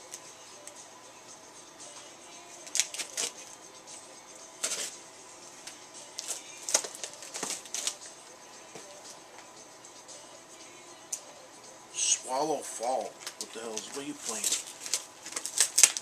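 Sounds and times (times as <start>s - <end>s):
knife slitting packing tape: 2.6s - 3.5s, 14.4s - 16.0s.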